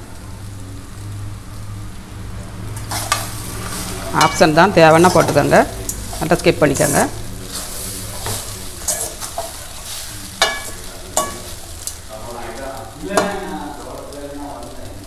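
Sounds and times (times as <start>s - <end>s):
metal spoon stirring in pan: 2.6s - 12.1s
spoon clinking against pan: 10.4s - 11.5s.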